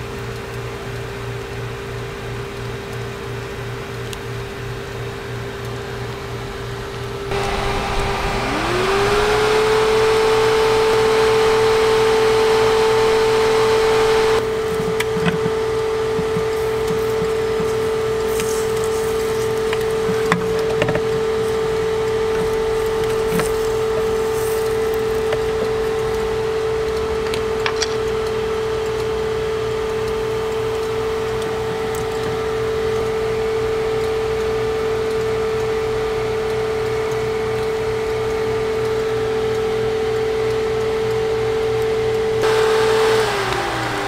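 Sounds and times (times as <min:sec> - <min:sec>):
steady hum: 0:06.4 - 0:27.6, 0:41.0 - 0:44.0.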